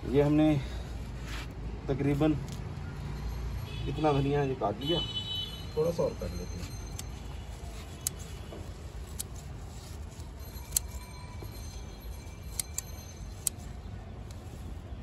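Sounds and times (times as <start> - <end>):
scissors snipping stems: 9.0 - 9.4.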